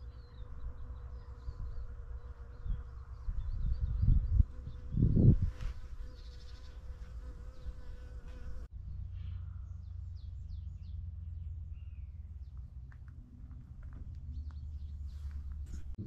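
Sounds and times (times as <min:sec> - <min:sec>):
low wind rumble: 0:00.4 - 0:05.8
wind gusts on microphone: 0:02.5 - 0:06.1.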